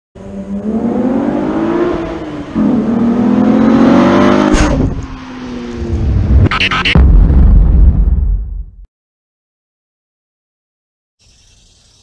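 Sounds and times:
car accelerating past: 0.2 - 6.5.

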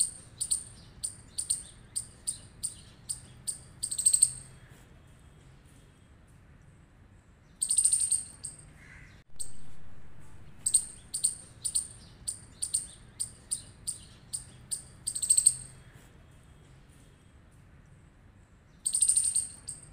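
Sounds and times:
squirrel chirping: 0.0 - 4.6, 7.5 - 8.7, 10.6 - 15.9, 18.7 - 19.9.

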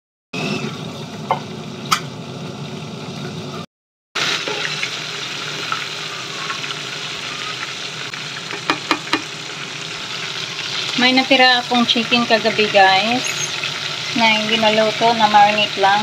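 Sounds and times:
meat and onions sizzling in pan: 4.2 - 16.0.

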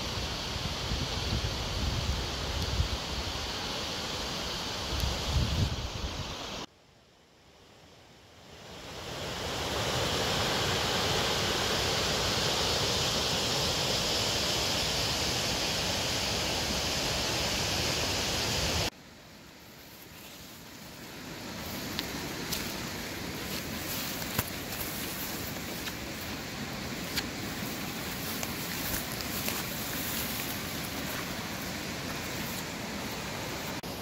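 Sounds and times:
faint hiss: 0.0 - 34.0
river rushing over rapids: 8.7 - 18.9, 20.6 - 34.0.

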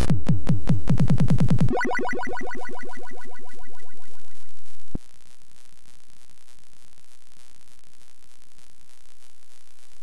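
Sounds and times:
chiptune computer music: 1.7 - 4.4
low hiss and buzz: 2.6 - 10.0.

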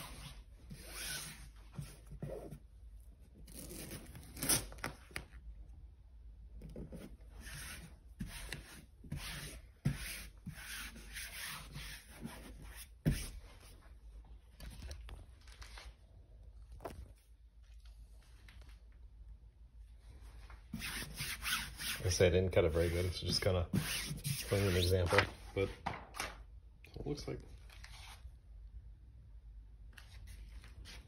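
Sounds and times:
hand rubbing decal on wall: 0.0 - 2.7, 6.7 - 13.8, 20.6 - 25.2.

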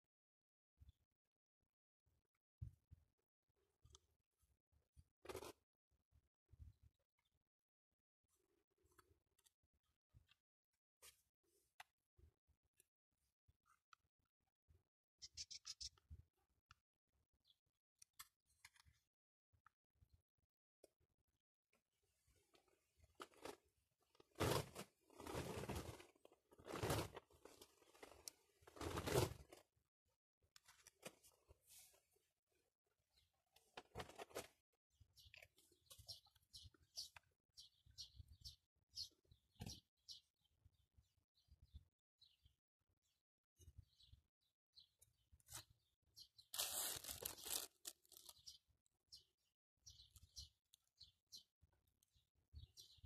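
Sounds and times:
faint bird chirps: 15.2 - 16.1
rustling crunch of handling: 22.5 - 29.7, 46.4 - 48.6
rustling crinkling handling noise: 46.5 - 48.6.

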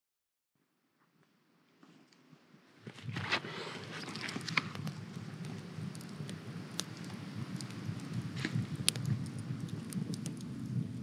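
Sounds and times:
low flame noise: 2.4 - 11.0
campfire crackling and popping: 2.9 - 11.0.

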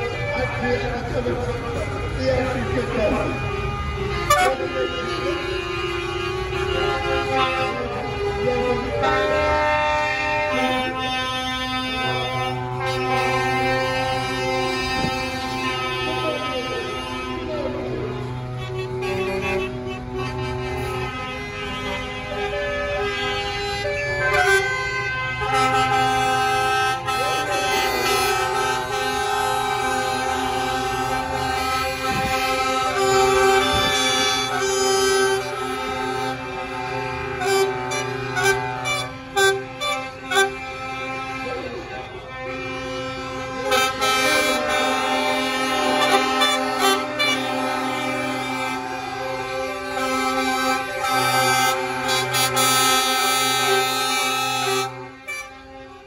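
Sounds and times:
diesel engine running: 0.0 - 56.0
truck air horns: 0.0 - 56.0.

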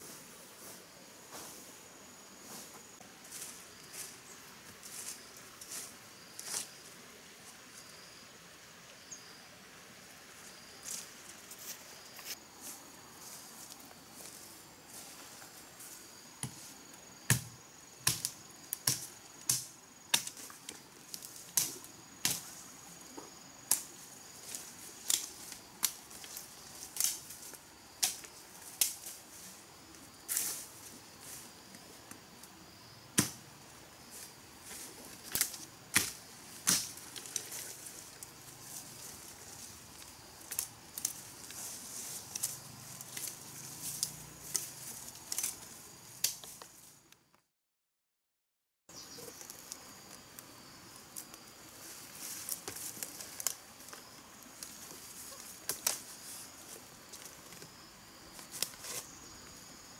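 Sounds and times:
knife chopping branches: 17.3 - 20.4, 33.2 - 33.4, 35.2 - 37.4.

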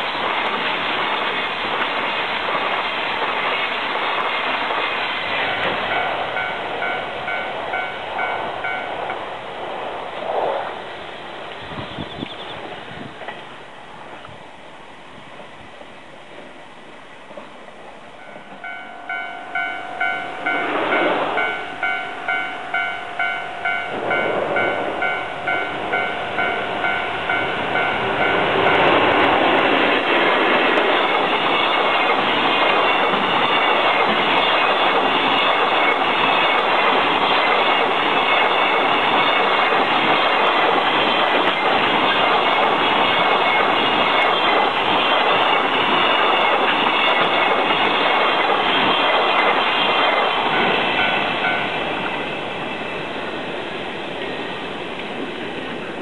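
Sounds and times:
train wheels rushing over rails: 0.0 - 14.3, 17.3 - 56.0
level crossing warning bell: 5.8 - 9.2, 18.1 - 30.0, 30.8 - 53.2.

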